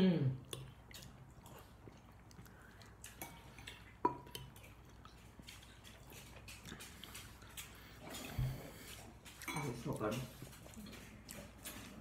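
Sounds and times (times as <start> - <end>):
metal spoon clinking ceramic bowl: 9.5 - 9.9.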